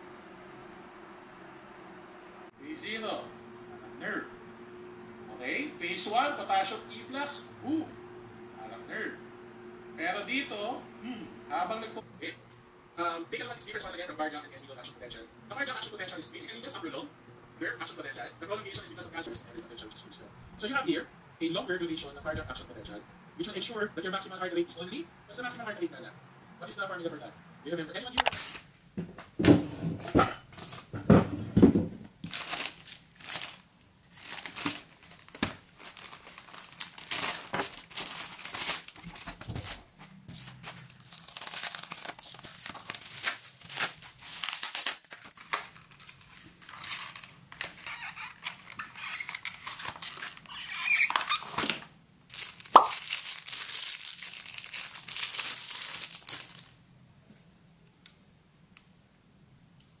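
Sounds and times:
plastic packaging tearing: 0:28.2 - 0:28.7, 0:32.2 - 0:56.8.

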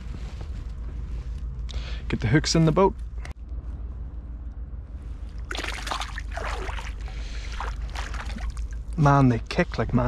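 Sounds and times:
water sloshing and trickling: 0:05.1 - 0:09.6
paddle splashing in water: 0:05.5 - 0:08.8.

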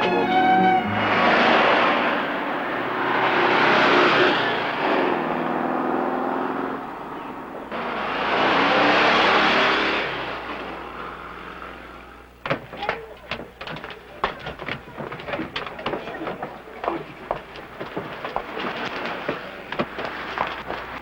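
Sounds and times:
car driving past: 0:00.0 - 0:12.0.

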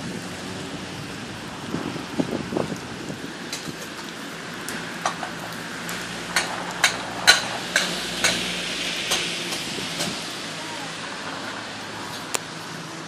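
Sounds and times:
food sizzling on hotplate: 0:04.7 - 0:10.5.

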